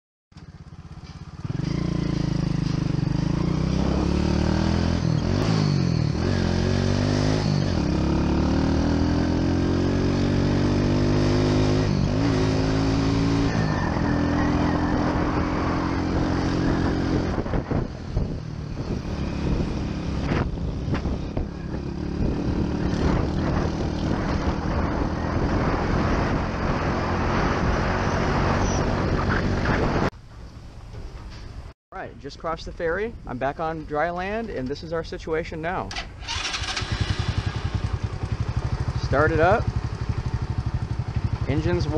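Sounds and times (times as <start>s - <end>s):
motorbike engine revving: 0.4s - 30.1s, 36.0s - 41.9s
rough rushing noise: 10.1s - 31.7s.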